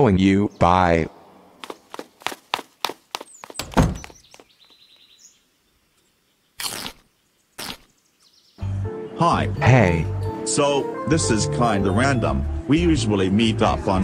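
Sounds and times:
heavy thump: 3.6 - 4.2.

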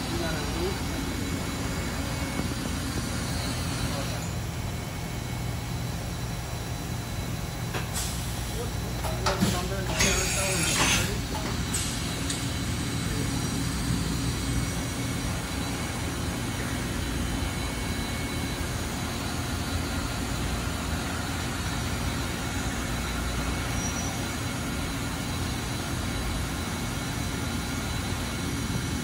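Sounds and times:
machinery humming and hissing: 0.0 - 29.0.

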